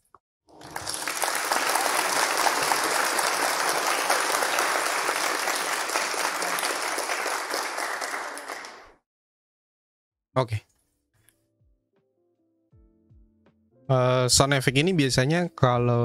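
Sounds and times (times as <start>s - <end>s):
large crowd clapping: 0.5s - 9.0s.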